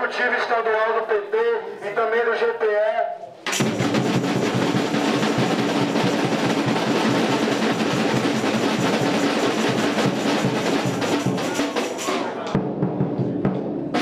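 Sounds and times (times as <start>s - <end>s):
drums playing fast beat: 3.5s - 14.0s.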